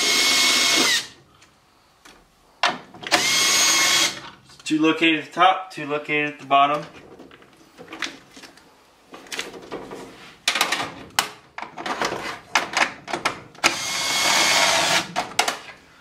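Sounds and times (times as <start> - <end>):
cordless drill running: 0.0 - 1.2, 3.1 - 4.2, 13.6 - 15.1
tool handling clicks and knocks: 6.7 - 13.8, 15.1 - 15.8.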